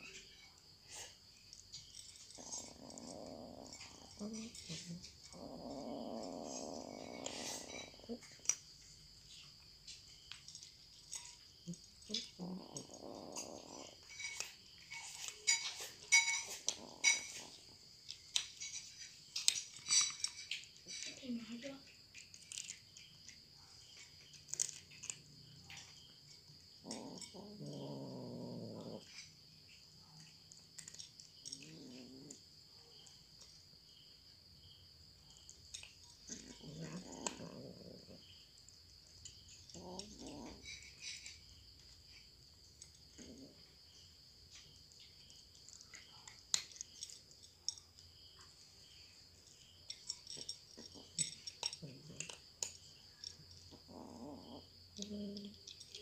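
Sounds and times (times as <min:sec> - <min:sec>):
cats crunching kibble: 0:01.5 - 0:08.9, 0:10.3 - 0:21.0, 0:22.1 - 0:23.2, 0:24.2 - 0:25.9, 0:30.5 - 0:32.4, 0:44.5 - 0:47.9, 0:50.1 - 0:54.6
low rough cat sound: 0:02.3 - 0:08.5, 0:26.8 - 0:29.4, 0:30.8 - 0:32.4, 0:36.3 - 0:38.7, 0:39.7 - 0:42.2
cats crunching dry kibble: 0:22.1 - 0:23.1, 0:24.2 - 0:25.9, 0:30.6 - 0:32.4.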